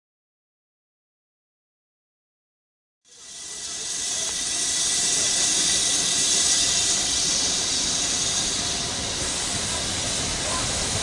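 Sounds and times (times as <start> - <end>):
steam hissing: 3.1 - 11.0.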